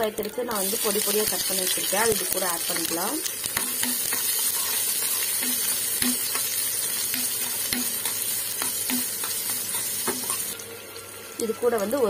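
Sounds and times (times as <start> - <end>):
shallots sizzling in hot oil: 0.0 - 12.0
spoon scraping a pan: 3.5 - 10.6.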